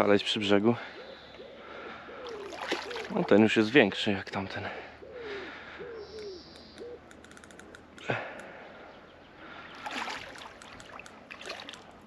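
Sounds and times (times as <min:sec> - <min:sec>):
fish splashing in water: 0:02.3 - 0:03.4, 0:09.8 - 0:12.0.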